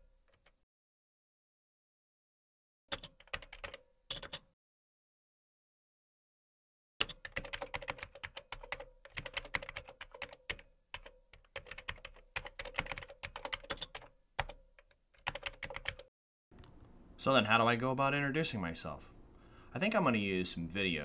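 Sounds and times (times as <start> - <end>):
typing on a computer keyboard: 2.9 - 4.5, 7.0 - 16.1.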